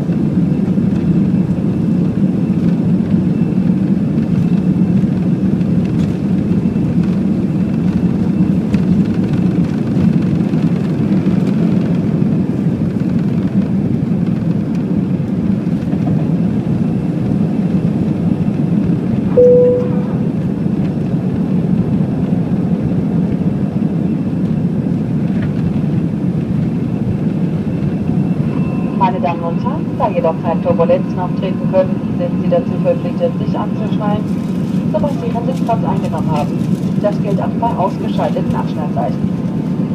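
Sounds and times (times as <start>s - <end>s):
jet engine cabin rumble: 0.0s - 39.9s
short cabin tone: 19.3s - 20.6s.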